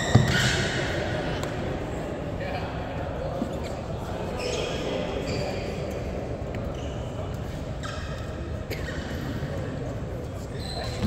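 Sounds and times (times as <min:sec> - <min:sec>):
shoe squeaks on court floor: 0:00.0 - 0:01.0, 0:03.6 - 0:06.0, 0:06.7 - 0:09.5, 0:10.3 - 0:11.0
sports hall din: 0:00.0 - 0:11.0.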